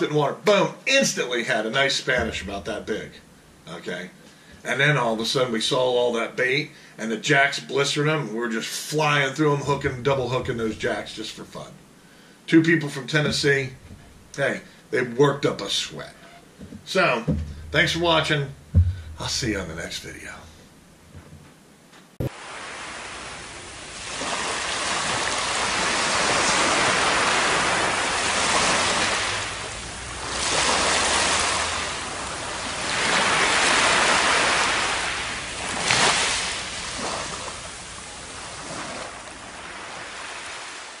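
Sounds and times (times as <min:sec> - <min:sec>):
surf washing on beach: 0:00.0 - 0:04.0, 0:09.0 - 0:11.7, 0:22.2 - 0:41.0
sharp wave splash: 0:22.2 - 0:41.0.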